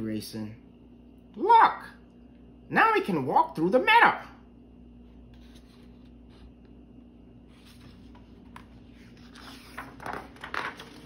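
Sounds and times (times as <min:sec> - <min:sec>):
book page turning: 0:05.2 - 0:06.8, 0:07.4 - 0:11.0.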